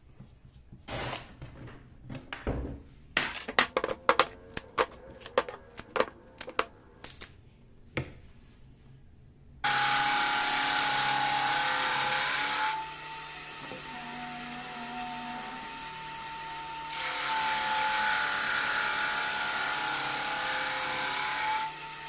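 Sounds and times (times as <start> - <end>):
wooden rings knocking together: 3.2 - 6.7.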